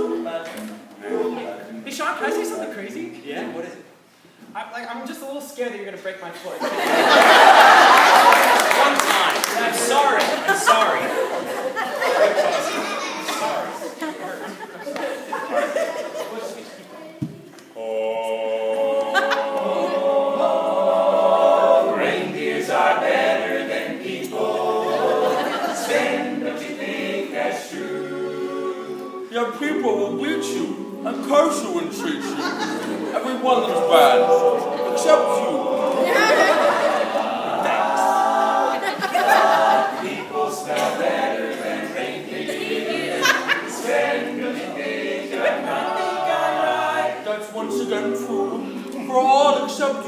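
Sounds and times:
male a cappella group singing: 0:00.0 - 0:01.8, 0:17.7 - 0:50.0.

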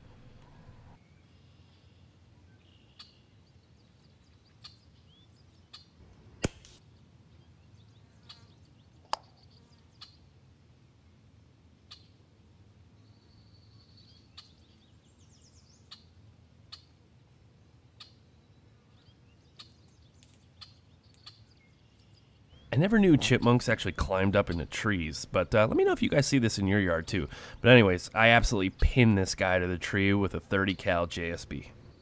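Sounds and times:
faint bird chirps: 0:00.3 - 0:06.0, 0:06.9 - 0:10.3
air rifle shot: 0:06.4 - 0:06.8
sharp click: 0:06.4 - 0:06.8, 0:09.1 - 0:09.3.

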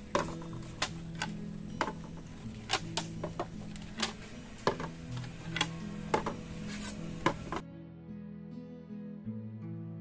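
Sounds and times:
soft background music: 0:00.0 - 0:10.0
plates clinking on wooden table: 0:00.1 - 0:00.6, 0:03.2 - 0:05.0.

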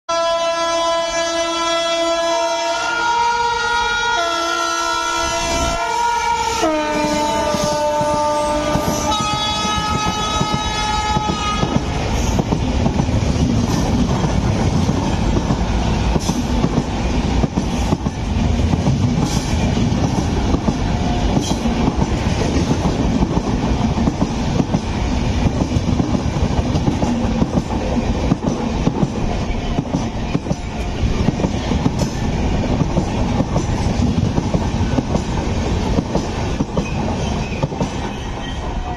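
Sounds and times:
locomotive horn: 0:00.1 - 0:11.9
train coaches rumbling past: 0:00.1 - 0:38.9.

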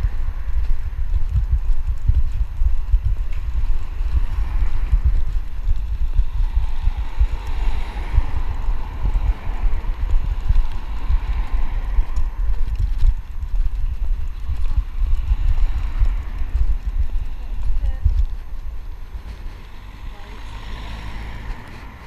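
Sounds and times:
wind buffeting microphone: 0:00.0 - 0:22.0
car driving past: 0:03.7 - 0:12.4, 0:19.5 - 0:22.0.

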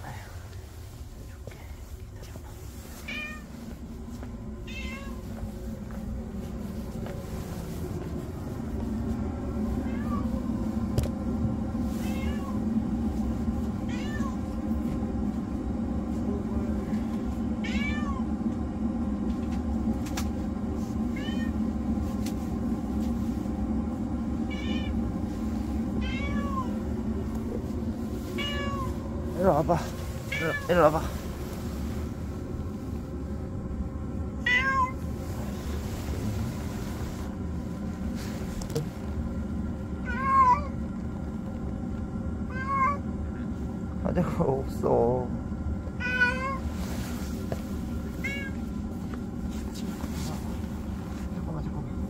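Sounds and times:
steady low hum: 0:00.0 - 0:52.0
cat meowing: 0:03.0 - 0:03.4, 0:04.6 - 0:05.2, 0:12.0 - 0:12.6, 0:13.9 - 0:14.4, 0:17.6 - 0:18.2, 0:24.5 - 0:25.0, 0:26.0 - 0:26.8, 0:28.4 - 0:28.9, 0:34.4 - 0:35.0, 0:40.0 - 0:40.8, 0:42.5 - 0:43.0, 0:46.0 - 0:46.7, 0:48.2 - 0:48.6.

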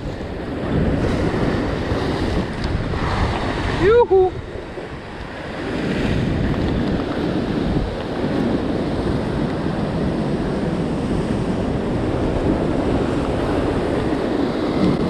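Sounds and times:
ocean surf washing over rocks: 0:00.0 - 0:15.0
wind buffeting microphone: 0:00.0 - 0:15.0.

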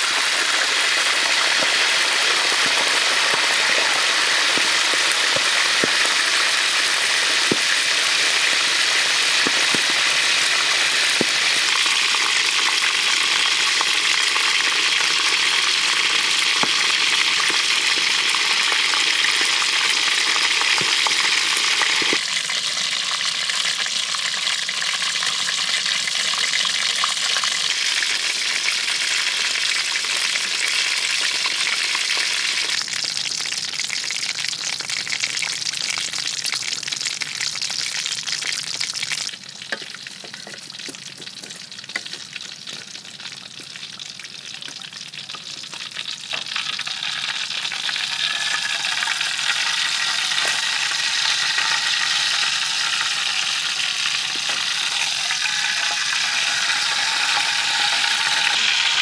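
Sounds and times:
fish deep-frying in hot oil: 0:00.0 - 0:59.0.

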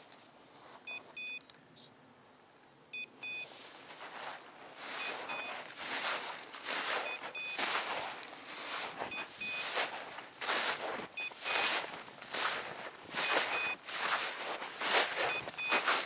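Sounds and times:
beeper collar double beeps: 0:03.0 - 0:03.5, 0:05.0 - 0:05.6, 0:06.9 - 0:07.8, 0:09.1 - 0:09.9, 0:11.2 - 0:11.8, 0:13.2 - 0:13.8, 0:15.2 - 0:16.0
footsteps crunching through snow: 0:03.4 - 0:16.0.

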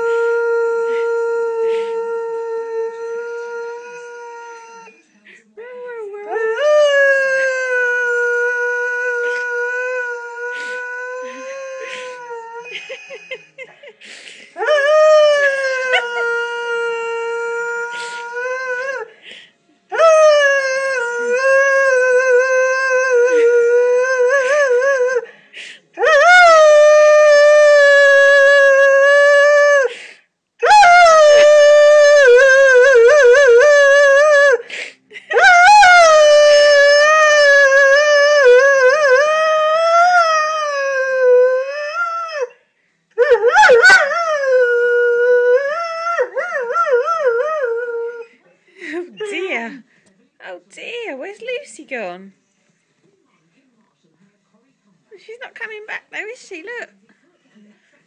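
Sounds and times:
dog howling: 0:19.9 - 0:25.2, 0:26.0 - 0:29.9, 0:30.6 - 0:34.6, 0:35.3 - 0:42.6, 0:43.2 - 0:48.3.

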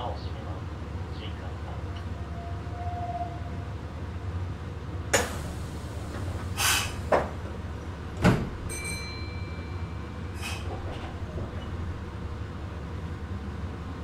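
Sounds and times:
train equipment humming: 0:00.0 - 0:14.0
sliding doors thumping: 0:05.2 - 0:08.7.

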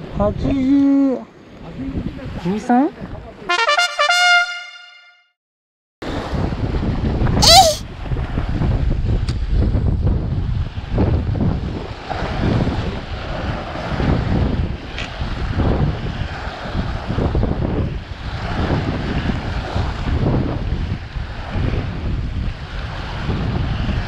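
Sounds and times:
wind buffeting microphone: 0:06.0 - 0:24.0.

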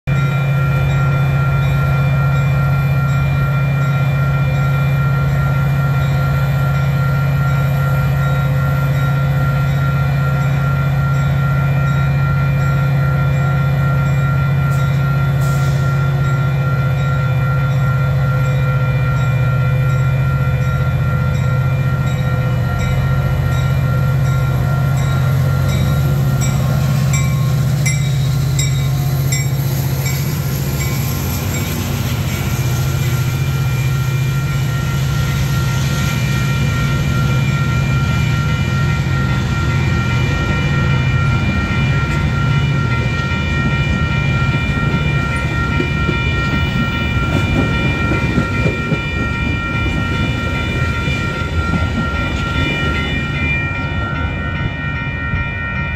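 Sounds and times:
diesel locomotive drone: 0:00.0 - 0:55.9
locomotive bell ringing: 0:00.1 - 0:55.9.

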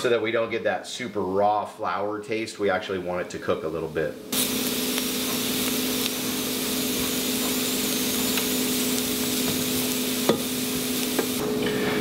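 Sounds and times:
food sizzling in a pot: 0:04.3 - 0:11.8.

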